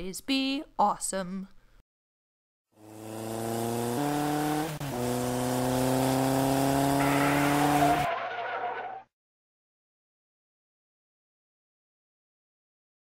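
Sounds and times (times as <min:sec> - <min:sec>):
dirt bike engine: 0:02.8 - 0:09.0.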